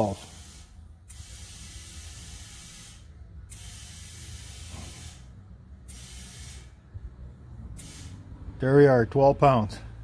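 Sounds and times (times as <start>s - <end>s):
compressed air hissing: 0.0s - 6.9s, 7.7s - 8.4s.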